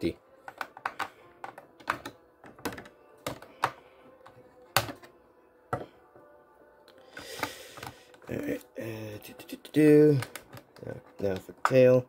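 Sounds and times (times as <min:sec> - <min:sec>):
plastic packaging clicks and taps: 0:00.4 - 0:05.1, 0:10.1 - 0:11.8.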